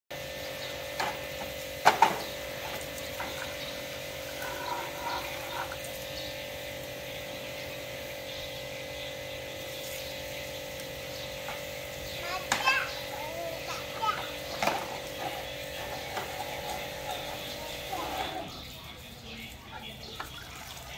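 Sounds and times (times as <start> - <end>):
electric water pump humming: 0.1 - 20.9
plastic toys clattering in basin: 14.1 - 18.4.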